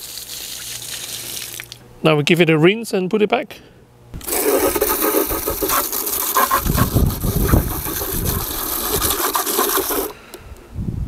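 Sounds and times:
tap water rushing: 0:04.2 - 0:10.2.

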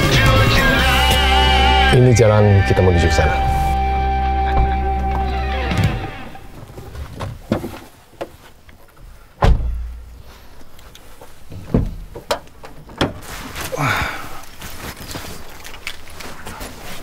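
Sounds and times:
car door slam: 0:09.4 - 0:10.0.

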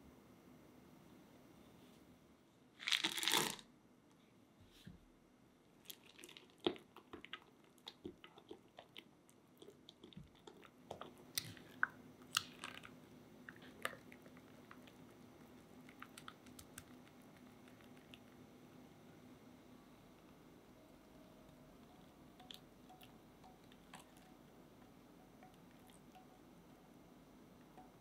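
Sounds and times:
spatula stirring thick custard: 0:06.0 - 0:18.8.

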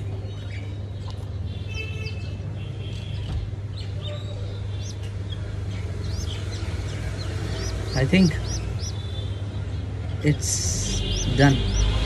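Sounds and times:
baby birds chirping: 0:03.7 - 0:12.0.

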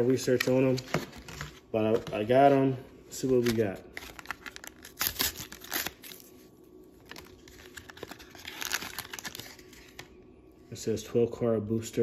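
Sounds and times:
plastic wrapper tearing and crinkling: 0:03.4 - 0:06.3, 0:07.0 - 0:10.1.

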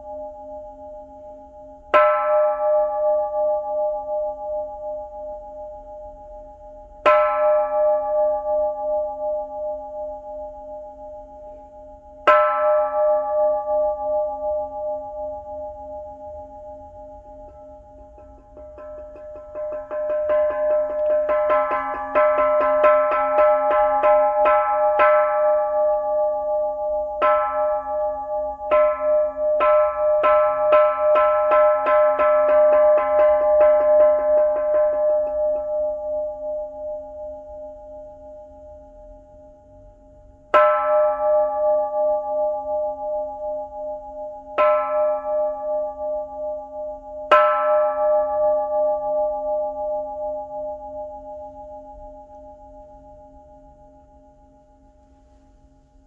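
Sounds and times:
temple bell struck with mallet: 0:00.0 - 0:54.7
small bell struck with mallet: 0:12.3 - 0:37.8.

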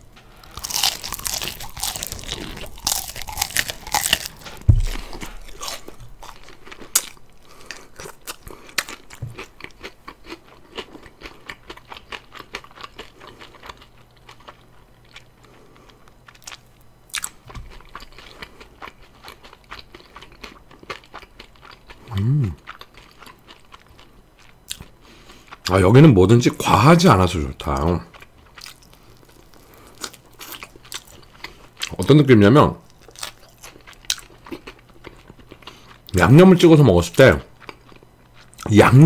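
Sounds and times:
fried chicken crunching: 0:00.4 - 0:15.3, 0:27.8 - 0:32.0, 0:32.9 - 0:36.2
dull thump: 0:04.6 - 0:05.0.

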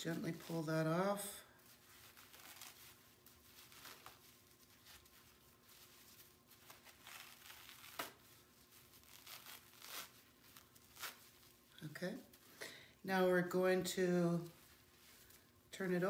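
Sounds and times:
netting rustling and crinkling: 0:00.0 - 0:12.5.

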